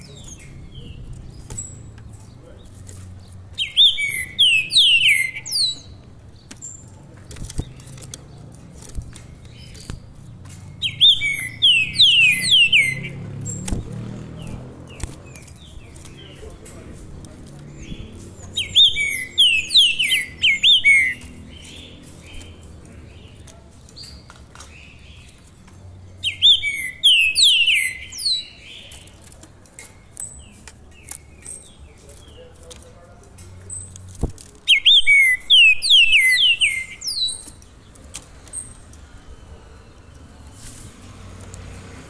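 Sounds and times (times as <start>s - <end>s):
songbird whistling: 3.5s - 6.0s, 10.7s - 13.8s, 18.6s - 22.6s, 26.2s - 28.9s, 34.7s - 37.6s.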